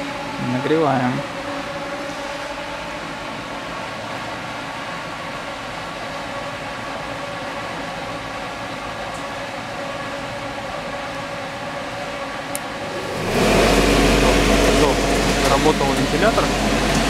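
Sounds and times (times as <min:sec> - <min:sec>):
steady mechanical hum: 0:00.0 - 0:17.0
steady tones: 0:12.5 - 0:17.0.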